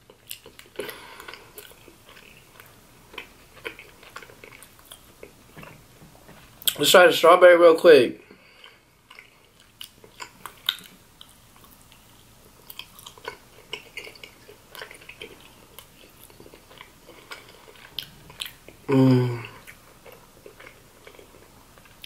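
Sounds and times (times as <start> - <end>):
mouth chewing clicks and smacks: 0.0 - 6.8, 8.6 - 18.9
person humming: 18.9 - 19.6.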